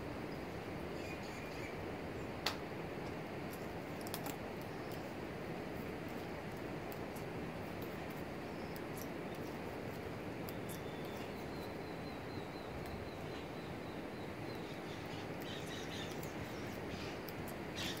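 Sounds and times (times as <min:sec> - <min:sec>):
light ticks of net knotting: 0:03.1 - 0:11.8
faint bird chirps: 0:10.5 - 0:18.0.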